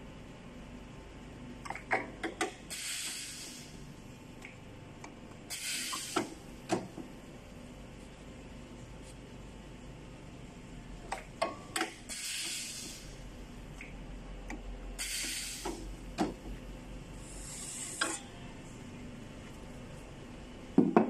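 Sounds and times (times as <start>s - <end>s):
short hissing scrapes: 5.5s - 6.3s, 12.1s - 13.1s, 15.0s - 15.8s, 17.2s - 18.2s.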